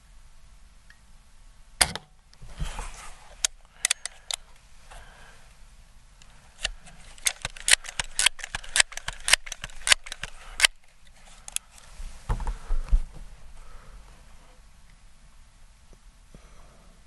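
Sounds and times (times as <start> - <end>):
pistol bolt clicks: 6.6 - 10.8.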